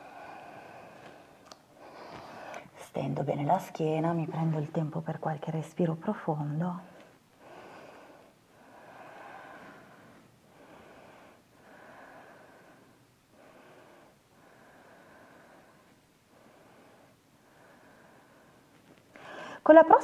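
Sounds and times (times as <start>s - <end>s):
woman breathing deeply: 0.0s - 2.8s, 7.0s - 19.6s.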